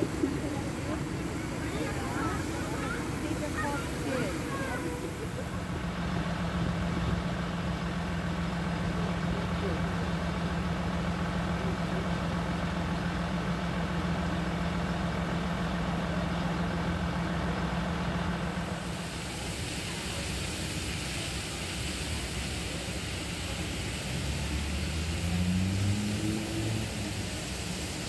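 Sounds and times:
water jet spraying from hose: 0:00.0 - 0:05.6, 0:18.8 - 0:28.0
diesel engine droning: 0:00.0 - 0:28.0.

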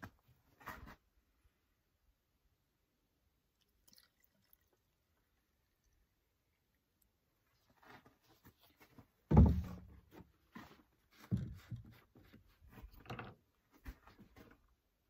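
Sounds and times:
plastic can thunking on tailgate: 0:09.3 - 0:10.0
plastic jug knocks and clicks: 0:09.3 - 0:10.2.

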